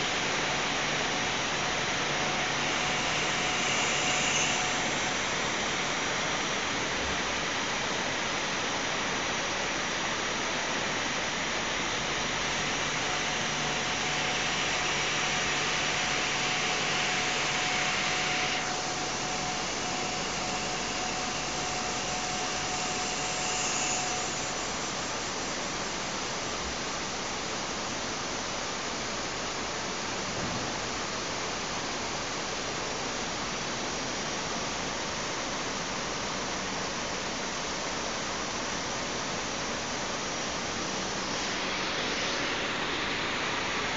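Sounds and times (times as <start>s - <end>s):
faint steady whistle: 0.0s - 5.5s, 12.4s - 26.4s
lathe hissing machining noise: 0.0s - 28.2s, 39.4s - 43.9s.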